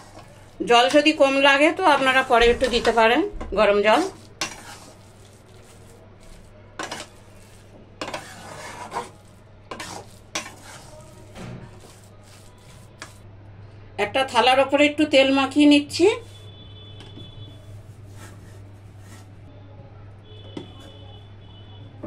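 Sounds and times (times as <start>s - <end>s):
metal spatula scraping pan: 0.0s - 13.2s, 17.7s - 19.4s.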